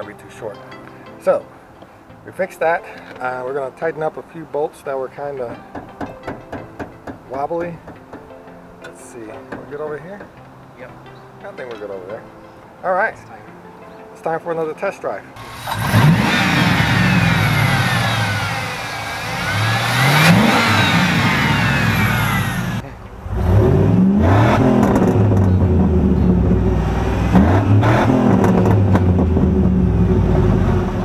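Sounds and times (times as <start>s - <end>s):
car engine revving: 15.4s - 31.0s
exhaust note with throttle blips: 15.4s - 31.0s
high whine: 15.4s - 31.0s.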